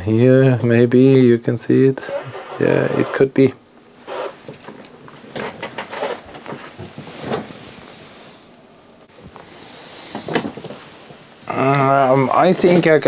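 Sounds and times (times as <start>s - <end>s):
soft hiss: 6.2s - 13.0s.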